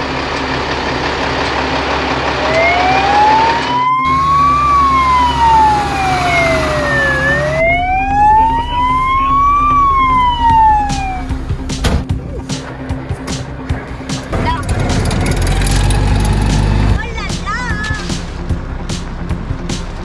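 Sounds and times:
fire truck siren wailing: 0:00.0 - 0:11.6.

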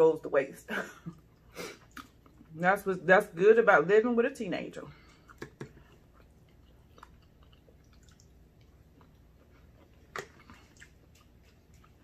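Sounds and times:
faint chewing: 0:01.1 - 0:02.6, 0:04.9 - 0:12.0.

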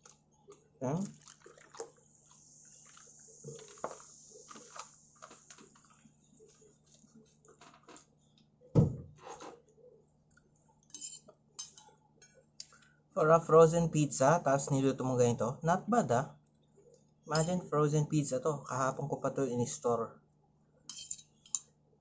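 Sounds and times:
fizzy drink pouring over ice: 0:00.9 - 0:06.0
loud thump: 0:08.8 - 0:09.1
spoon and dishes clinking: 0:10.9 - 0:12.4, 0:17.3 - 0:17.7, 0:20.9 - 0:21.7.

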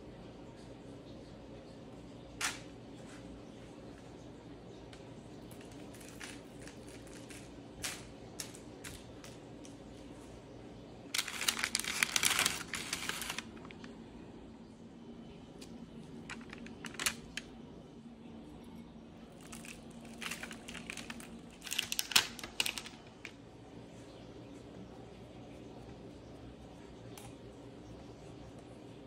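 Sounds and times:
parchment paper crinkling: 0:05.6 - 0:09.4, 0:11.1 - 0:14.0, 0:15.6 - 0:17.6, 0:19.3 - 0:23.4.

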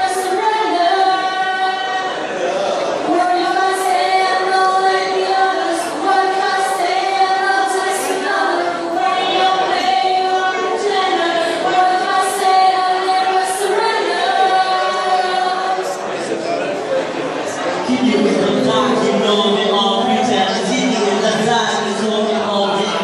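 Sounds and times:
women singing together: 0:00.0 - 0:16.1.

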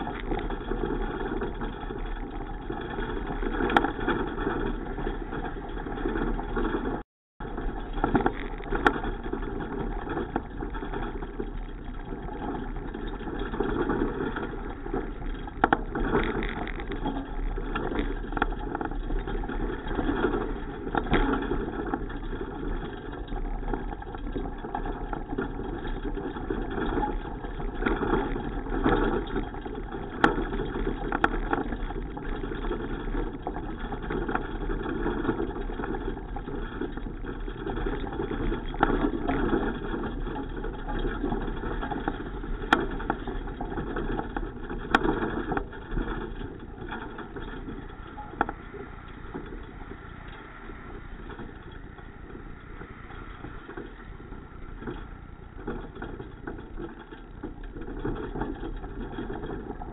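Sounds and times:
bicycle clicks and rattles: 0:00.0 - 0:59.9
wind and road noise: 0:00.0 - 0:59.9.

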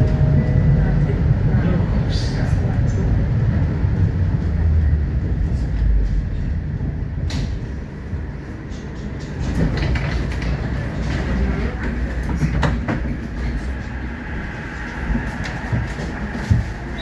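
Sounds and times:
tram running gear rumble: 0:00.0 - 0:17.0
wheels clacking on track: 0:08.7 - 0:14.0.

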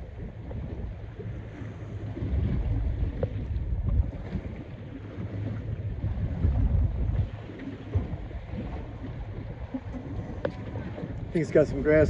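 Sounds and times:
ocean waves washing: 0:00.0 - 0:12.0
wind gusting on microphone: 0:02.0 - 0:04.7, 0:05.5 - 0:12.0.

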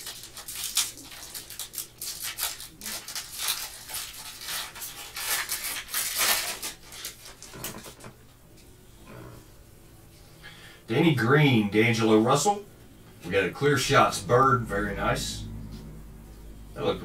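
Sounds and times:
foil wrapper crinkling and tearing: 0:00.0 - 0:08.1.

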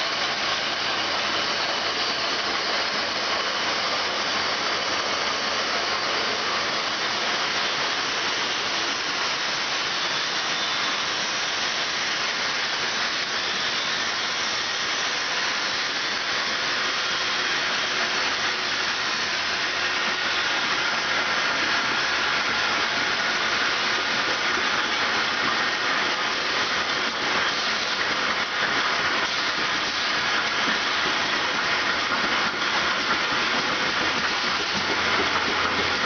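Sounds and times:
production line machinery running: 0:00.0 - 0:36.0.

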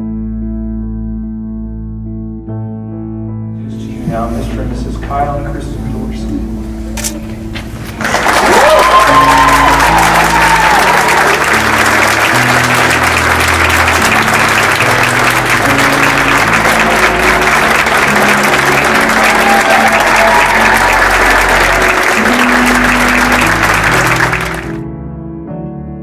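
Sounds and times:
people applauding: 0:07.9 - 0:24.8.

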